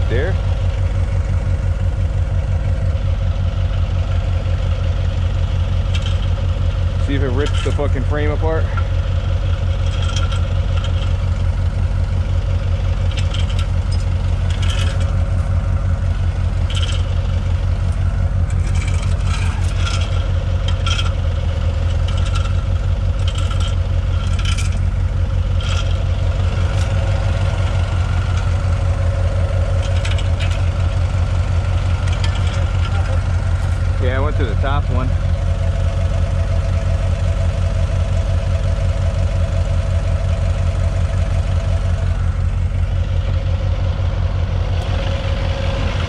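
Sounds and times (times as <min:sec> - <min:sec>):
diesel tractor engine idling: 0:00.0 - 0:46.0
tow chain clinking and scraping: 0:05.7 - 0:39.7.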